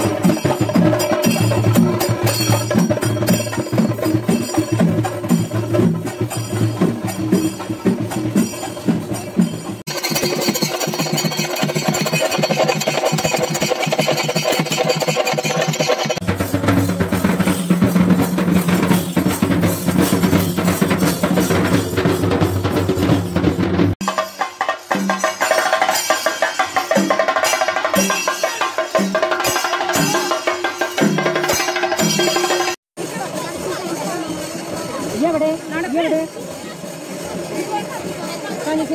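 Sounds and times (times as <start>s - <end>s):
drums beaten with sticks: 0.0s - 38.9s.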